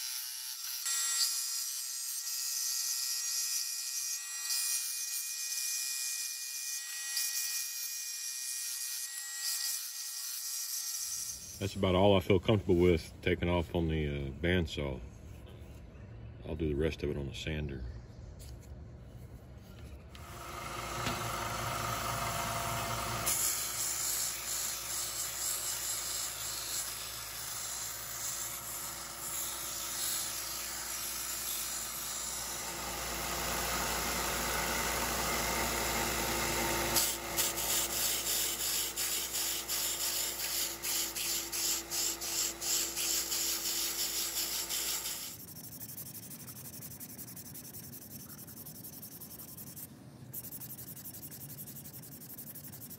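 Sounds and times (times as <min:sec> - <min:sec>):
belt sander grinding wood: 0:20.2 - 0:49.8
hand-sanding with sandpaper: 0:37.4 - 0:52.9.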